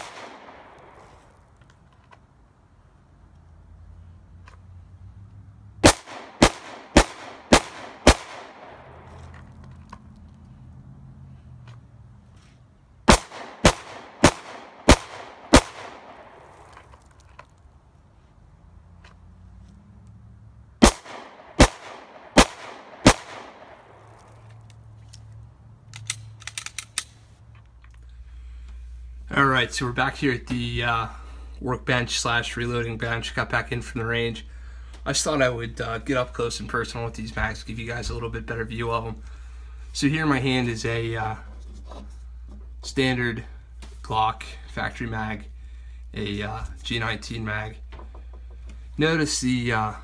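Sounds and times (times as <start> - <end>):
pistol shots: 0.0 - 1.1, 5.8 - 9.1, 13.1 - 16.7, 20.8 - 24.2.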